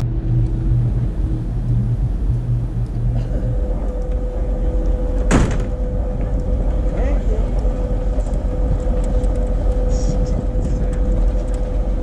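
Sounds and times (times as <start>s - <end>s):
locomotive rumble and hum: 0.0s - 12.0s
sharp bang: 5.3s - 5.8s.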